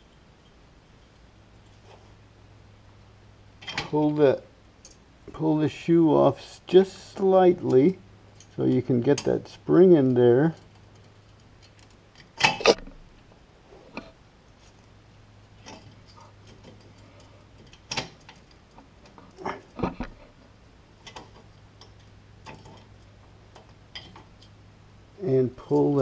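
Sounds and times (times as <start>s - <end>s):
metallic clicks and clinks: 7.6s - 9.4s.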